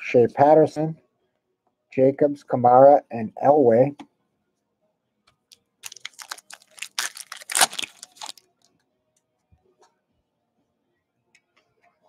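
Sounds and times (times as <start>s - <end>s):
foil wrapper crinkling and tearing: 5.8s - 8.4s.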